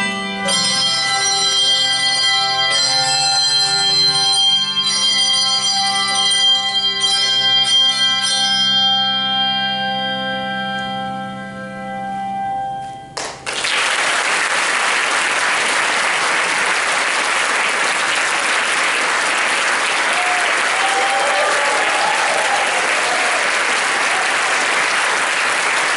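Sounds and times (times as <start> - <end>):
audience applause: 13.2 - 25.9.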